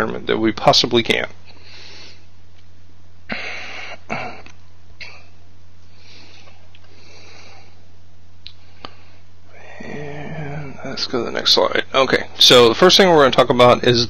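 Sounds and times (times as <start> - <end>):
steady low hum: 0.0 - 14.0
man breathing: 1.5 - 2.4, 3.3 - 4.1, 5.8 - 7.9, 8.5 - 10.9.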